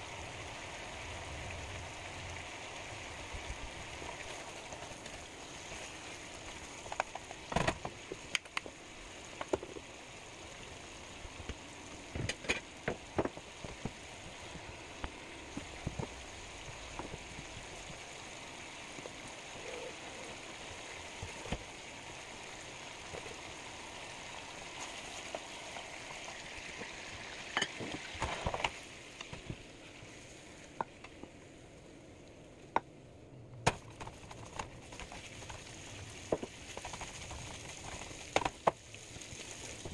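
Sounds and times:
bacon sizzling in a skillet: 0.0s - 29.4s, 34.0s - 39.9s
fat popping and crackling: 6.5s - 9.9s, 33.6s - 38.8s.

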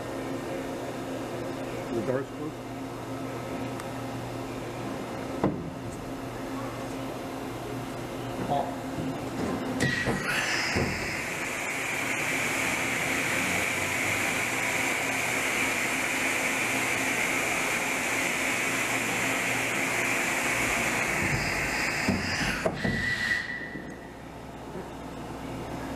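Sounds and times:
machine steady hiss: 9.8s - 24.3s.

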